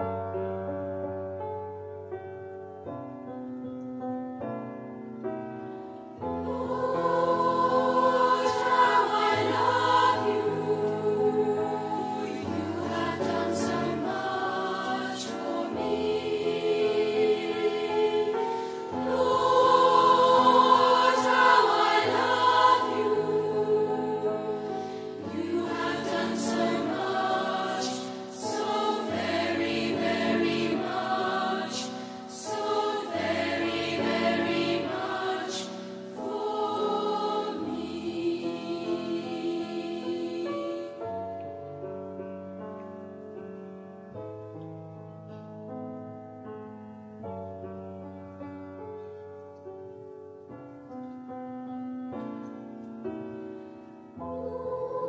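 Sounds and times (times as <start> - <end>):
keyboard: 0.0 - 55.0
children's choir singing: 6.4 - 41.2, 54.2 - 55.0.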